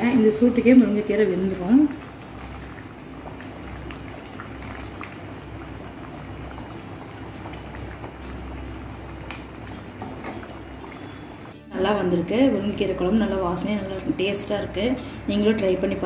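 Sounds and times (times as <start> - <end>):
stew bubbling in a pot: 0.0 - 16.0.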